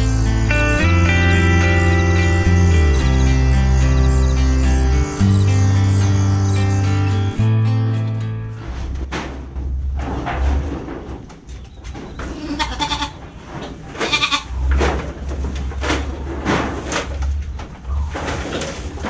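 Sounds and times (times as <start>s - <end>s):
knocks and rustling: 8.6s - 12.4s, 13.1s - 19.0s
goats bleating: 12.3s - 13.2s, 14.0s - 14.6s.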